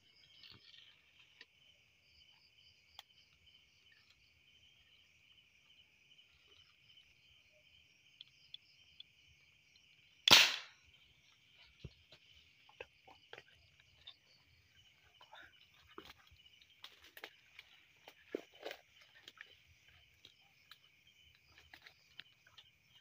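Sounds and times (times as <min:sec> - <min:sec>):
crickets chirping: 0:00.0 - 0:23.0
air gun firing blast: 0:10.3 - 0:10.7.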